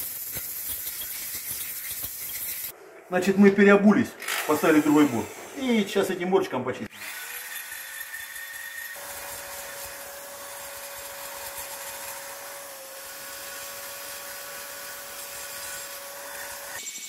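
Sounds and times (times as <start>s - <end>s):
electric drill grinding metal: 4.2s - 5.8s, 6.9s - 17.0s.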